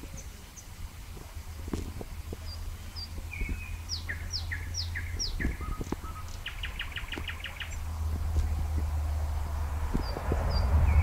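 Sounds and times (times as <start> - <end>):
nightingale singing: 0.0 - 11.0
low rumble: 7.4 - 11.0.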